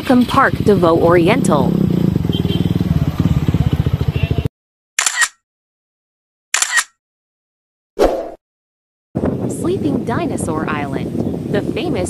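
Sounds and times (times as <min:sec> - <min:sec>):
motorcycle engine running: 0:00.0 - 0:04.5
swishing sound effects: 0:08.0 - 0:08.4.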